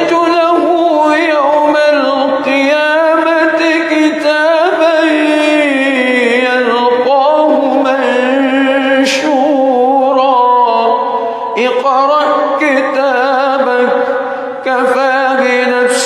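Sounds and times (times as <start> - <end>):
man chanting melodically: 0.0 - 16.0.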